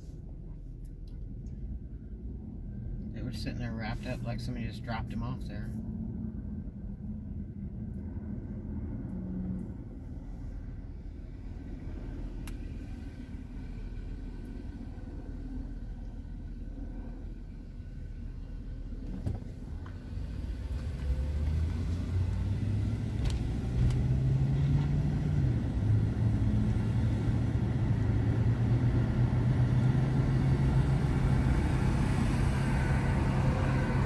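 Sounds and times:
car engine accelerating: 11.4s - 34.0s.

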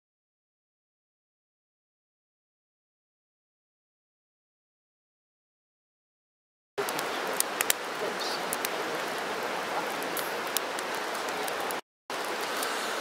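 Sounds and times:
wood fire crackling and popping: 6.8s - 13.0s.

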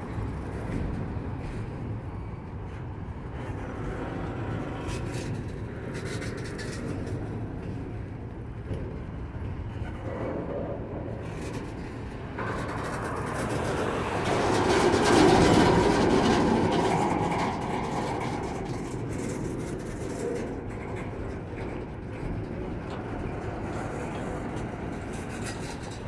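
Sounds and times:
train wheels clicking and clattering: 0.0s - 26.0s
freight train rumbling past: 10.7s - 26.0s.

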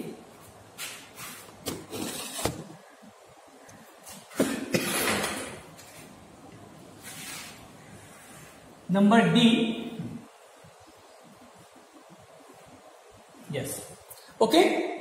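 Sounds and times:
scratchy noise: 0.8s - 2.7s.

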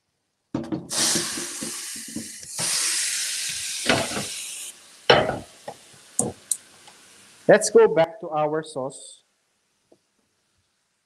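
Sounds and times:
pan clunking on stove grate: 0.6s - 2.4s, 3.9s - 4.4s, 5.1s - 6.5s
pan knocking against sink: 0.6s - 2.4s, 3.9s - 4.3s, 5.1s - 5.5s
tap water running into a pan: 0.6s - 7.5s.

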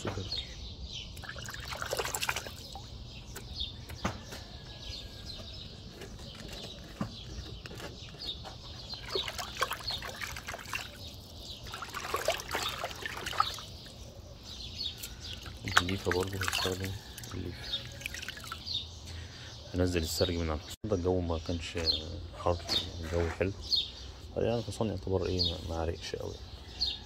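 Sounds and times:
water splashing in a bucket: 1.2s - 2.9s, 8.9s - 13.9s, 15.3s - 18.7s.

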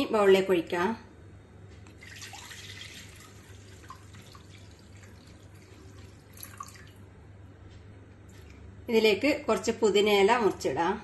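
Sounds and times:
liquid dripping into glass bowl: 1.9s - 7.0s.

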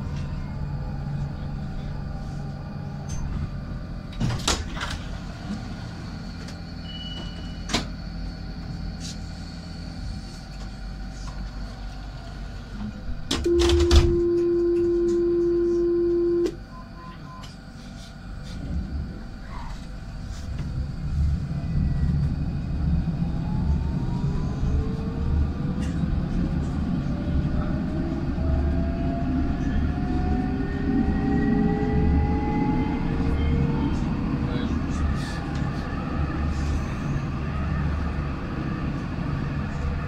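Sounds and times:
tram doors clunking: 2.9s - 8.1s, 12.6s - 15.7s
door-closing warning tone: 6.4s - 8.0s, 13.3s - 17.6s
steady hum: 13.0s - 16.6s.

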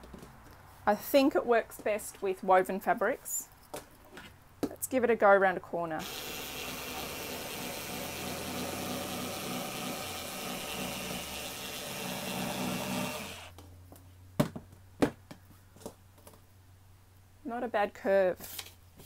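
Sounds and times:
small electric motor running: 6.0s - 13.5s.

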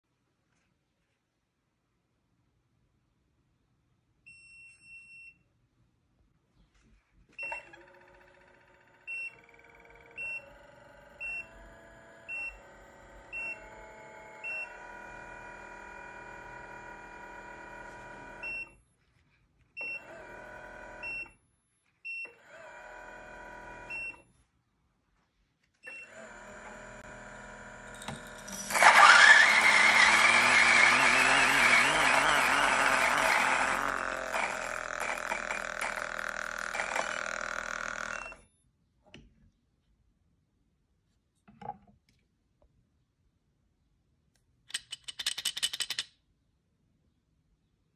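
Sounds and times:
coffee grinder motor: 7.5s - 18.7s, 20.0s - 21.1s, 22.4s - 24.1s, 26.0s - 38.4s
beans grinding loudly: 27.1s - 38.4s.

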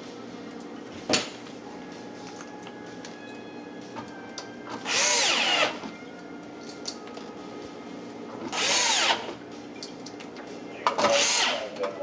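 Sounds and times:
electric screwdriver whirring: 4.8s - 5.9s, 8.5s - 9.4s, 11.1s - 11.7s.

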